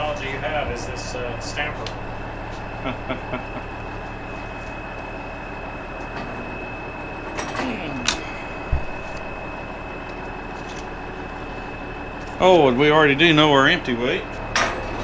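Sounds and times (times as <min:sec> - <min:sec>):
truck engine idling: 0:00.0 - 0:15.0
short low thump: 0:08.6 - 0:09.2.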